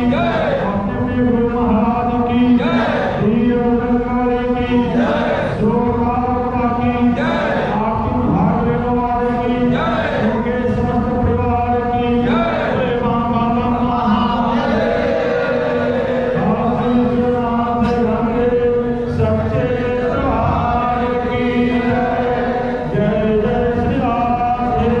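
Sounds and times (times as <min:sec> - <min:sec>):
voices chanting along: 0:00.0 - 0:00.9, 0:02.1 - 0:03.4, 0:04.5 - 0:05.8, 0:06.6 - 0:07.9, 0:09.3 - 0:10.5, 0:12.2 - 0:17.2, 0:17.8 - 0:25.0
man chanting into a microphone: 0:00.0 - 0:25.0.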